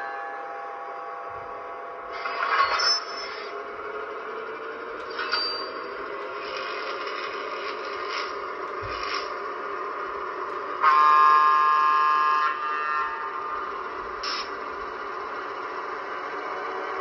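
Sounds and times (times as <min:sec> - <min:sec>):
electric locomotive running sound: 0:00.0 - 0:17.0
brief high squeaks: 0:02.1 - 0:03.5.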